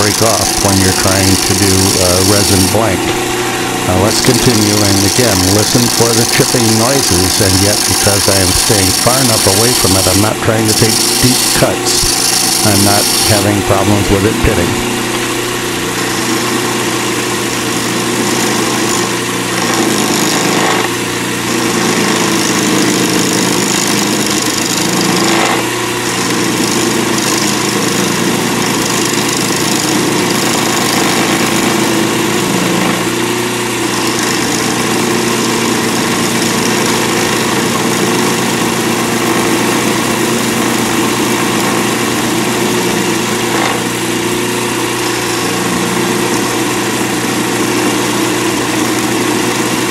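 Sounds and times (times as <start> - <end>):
chisel chipping on resin: 0.0 - 3.2, 4.0 - 13.9, 17.5 - 33.1, 33.8 - 43.9
lathe running: 0.0 - 49.9.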